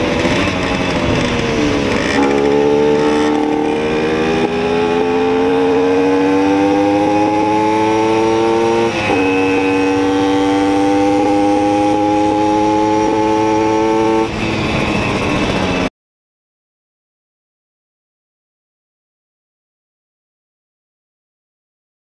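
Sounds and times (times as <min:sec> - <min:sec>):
two-stroke moped engine accelerating: 0:00.0 - 0:15.9.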